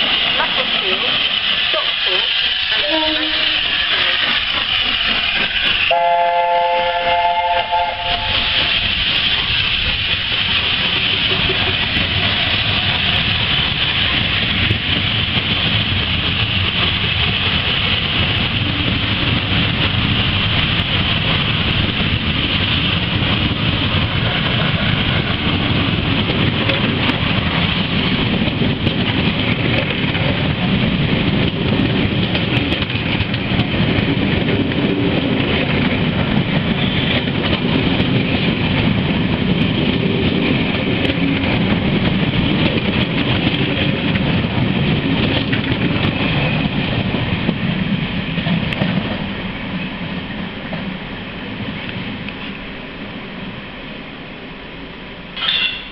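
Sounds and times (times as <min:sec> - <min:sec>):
train wheels rumbling and rattling: 0:00.0 - 0:55.9.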